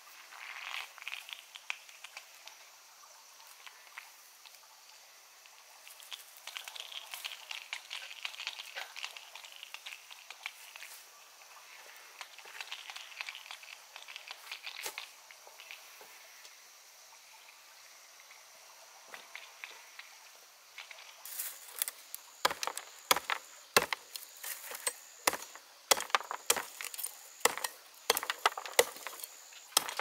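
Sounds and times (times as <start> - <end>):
leaves and stems rustling: 20.8 - 30.0.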